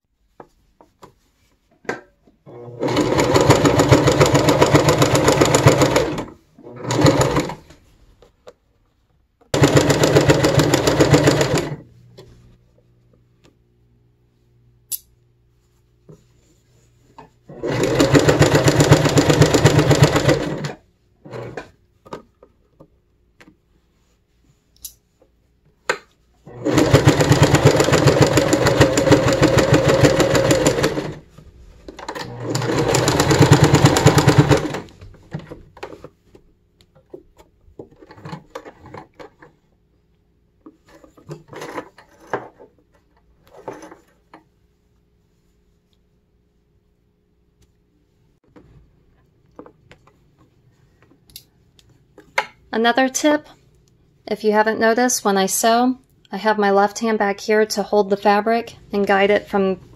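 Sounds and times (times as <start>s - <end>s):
sewing machine stitching: 2.5s - 7.7s, 9.5s - 11.8s, 17.5s - 21.7s, 26.5s - 31.3s, 31.9s - 35.6s.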